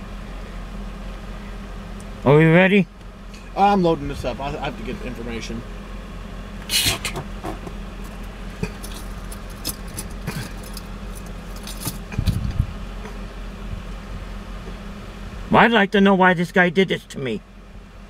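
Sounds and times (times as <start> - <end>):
idling vehicle hum: 0.0 - 18.0
handling noises: 6.8 - 13.2.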